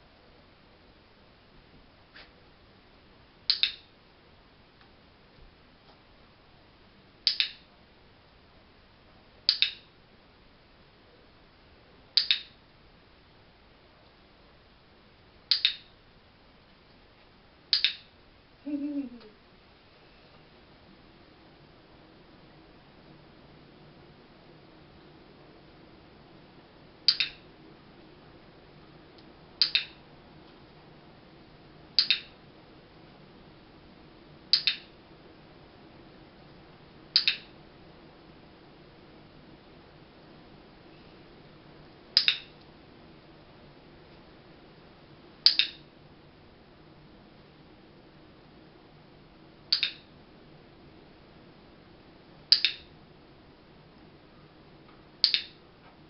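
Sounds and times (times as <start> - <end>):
training clicker double clicks: 3.5 - 3.9, 7.2 - 7.6, 9.5 - 9.9, 12.2 - 12.5, 15.5 - 15.8, 17.7 - 18.1, 45.5 - 45.8, 49.7 - 50.0, 52.5 - 52.9, 55.2 - 55.5
clicker clicking: 52.5 - 52.8, 55.2 - 55.5.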